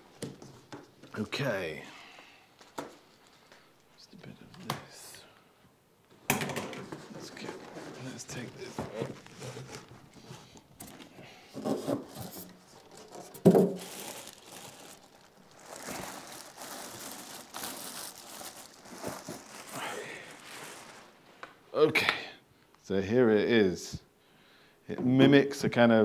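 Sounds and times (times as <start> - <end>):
cardboard and packing rustling: 6.8 - 21.4.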